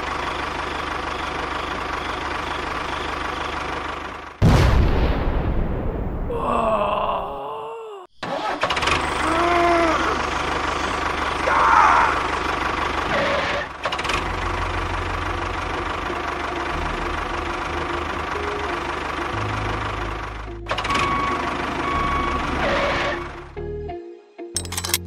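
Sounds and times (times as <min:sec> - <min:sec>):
tractor engine chugging: 0:00.0 - 0:04.4, 0:08.2 - 0:23.5.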